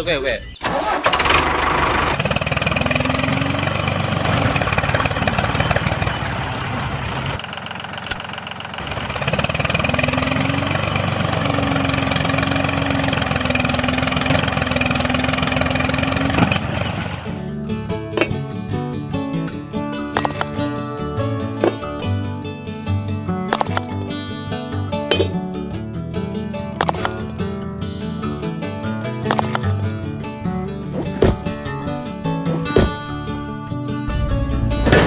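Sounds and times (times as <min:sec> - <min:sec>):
toy tractor engine chugging: 0:00.6 - 0:17.3
steady whine: 0:34.0 - 0:35.0.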